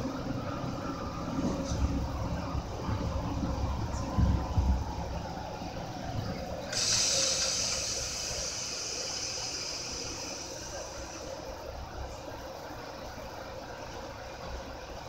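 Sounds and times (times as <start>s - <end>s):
train rumble: 0.0s - 15.0s
air brakes hissing: 6.6s - 11.7s.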